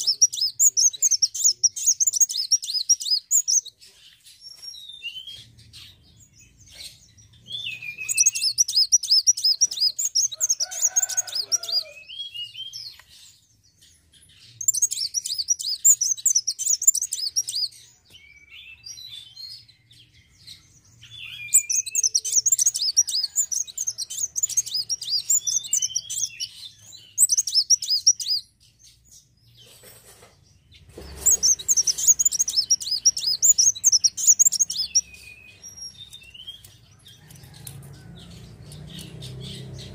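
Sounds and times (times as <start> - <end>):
bird chirps: 0.0 - 39.9
bird twittering: 7.5 - 12.8, 14.5 - 17.7, 21.1 - 28.4, 31.0 - 37.6.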